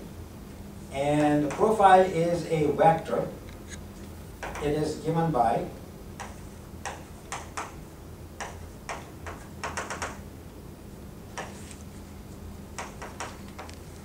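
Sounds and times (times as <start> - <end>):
low steady hum: 0.0 - 14.0
chalk tapping on blackboard: 1.5 - 1.8, 4.4 - 4.8, 6.2 - 10.2, 11.4 - 11.8, 12.8 - 13.8.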